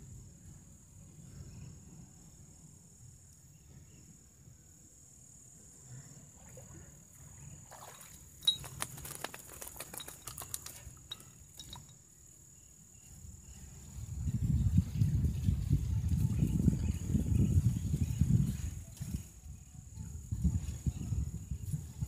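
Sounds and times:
fish splashing: 0:07.6 - 0:10.8
fish flapping on wet sand: 0:07.7 - 0:11.2.

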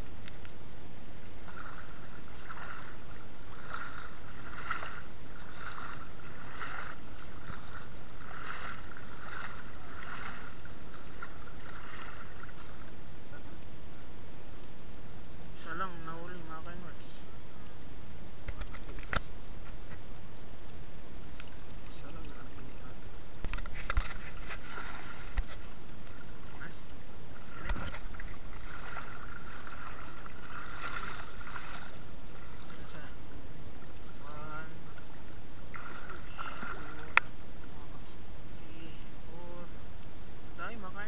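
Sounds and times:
shallow water sloshing: 0:01.2 - 0:13.7, 0:21.3 - 0:38.3.

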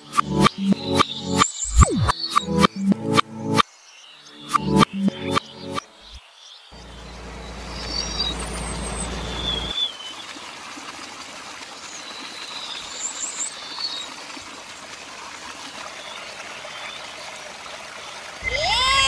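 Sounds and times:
low hum: 0:06.8 - 0:09.7
faint high chirps: 0:06.8 - 0:09.8
water trickling into a tank: 0:06.8 - 0:18.9.

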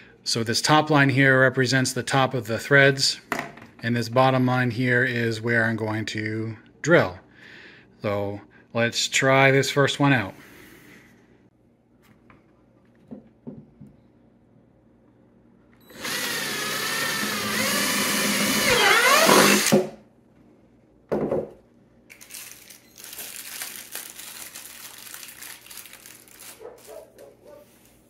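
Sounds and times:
power drill whining through plastic: 0:15.9 - 0:19.8
scraping and handling noise: 0:22.1 - 0:28.0.

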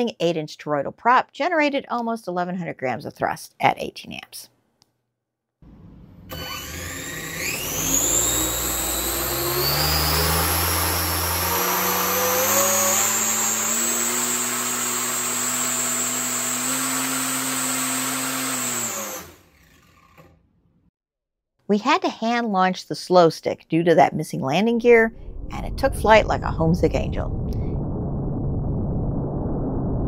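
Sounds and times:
electric motor whine: 0:05.7 - 0:20.3
rush of air: 0:25.1 - 0:30.0.

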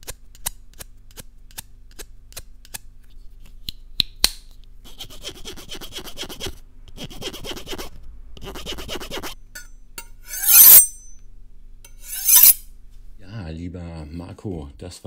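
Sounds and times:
knife blade rasping scrape: 0:09.2 - 0:11.1, 0:11.9 - 0:12.6.

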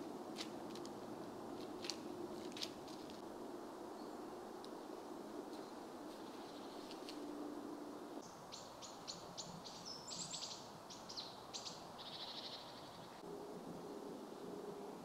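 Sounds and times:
songbird chirping and trilling: 0:03.9 - 0:15.0.

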